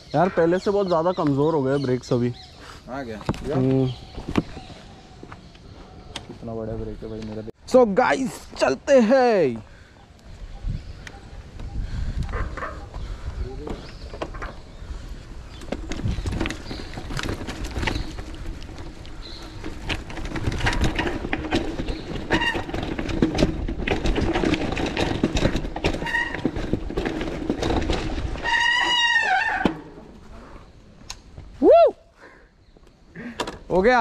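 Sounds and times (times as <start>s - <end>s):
bicycle rattling and clattering: 13.8s - 29.9s
high squeaks and squeal: 28.4s - 29.9s.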